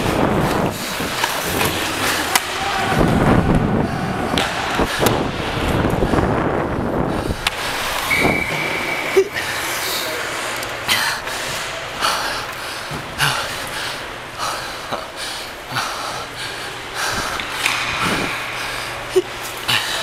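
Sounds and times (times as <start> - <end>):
skates scraping on ice: 0.0 - 3.2
hockey sticks clacking on puck: 0.4 - 3.0, 17.2 - 20.0.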